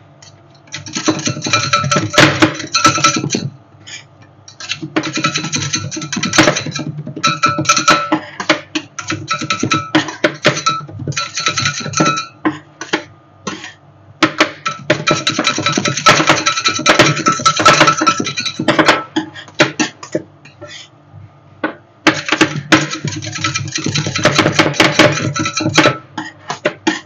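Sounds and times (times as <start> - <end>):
metal spatulas chopping and scraping: 0.7 - 3.5, 4.5 - 13.6, 14.2 - 20.2, 22.1 - 27.0.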